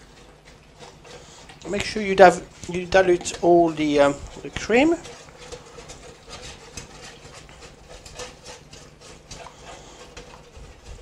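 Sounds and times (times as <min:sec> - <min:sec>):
utensil scraping a tray: 0:00.0 - 0:11.0.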